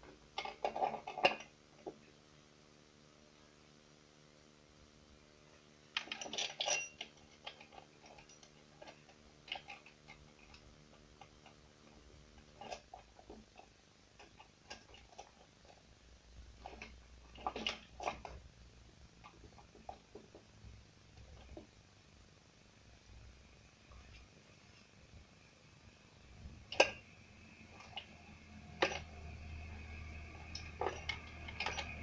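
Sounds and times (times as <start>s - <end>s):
light clicks and metallic clinks: 6.0s - 10.6s, 26.7s - 32.0s.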